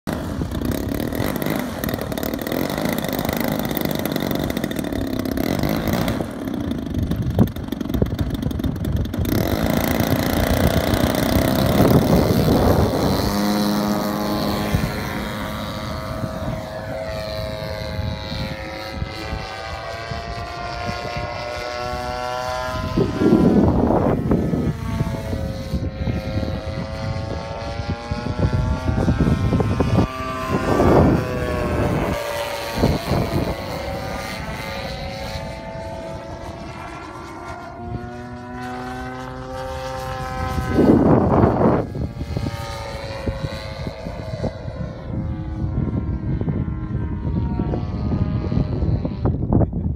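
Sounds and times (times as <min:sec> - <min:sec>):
model plane two-stroke engine: 0:00.0 - 0:49.9
wind buffeting microphone: 0:00.1 - 0:49.9.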